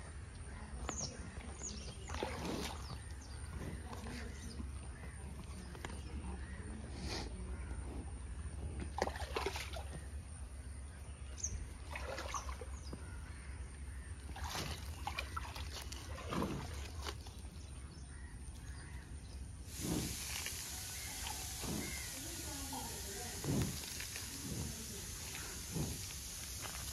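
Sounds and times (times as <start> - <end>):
stream trickling: 9.0 - 10.4, 11.3 - 13.4, 14.2 - 17.8, 19.7 - 26.9
buffalo grazing rustling crunching: 15.6 - 17.6, 19.7 - 26.9.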